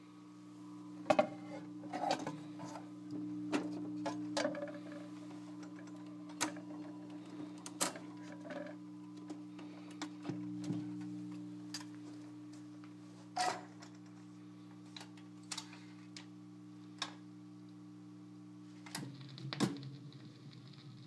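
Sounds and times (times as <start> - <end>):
steady low hum: 0.0 - 21.0
record changer clicks and clunks: 1.1 - 12.0, 16.9 - 17.2.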